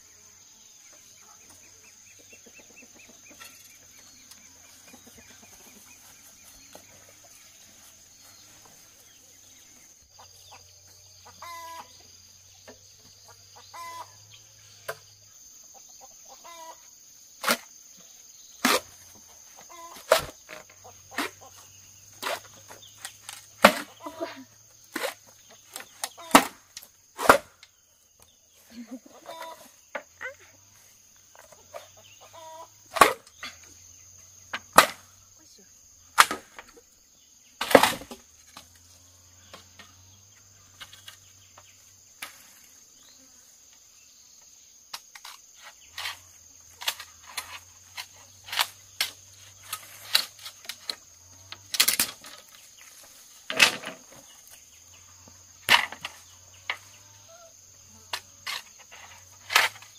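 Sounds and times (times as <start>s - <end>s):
high insect drone: 0.0s - 59.9s
machete chopping bamboo: 17.4s - 17.7s, 18.6s - 19.0s, 22.2s - 24.0s, 24.9s - 27.6s, 32.9s - 33.4s, 34.6s - 35.1s, 36.2s - 36.8s, 37.6s - 38.2s
bamboo poles knocking and clattering: 18.6s - 24.3s, 24.9s - 27.8s, 31.2s - 32.0s, 32.8s - 33.8s, 34.5s - 35.1s, 36.1s - 36.9s, 37.6s - 40.0s, 40.7s - 42.5s, 44.9s - 54.7s, 55.6s - 56.9s, 58.1s - 59.9s.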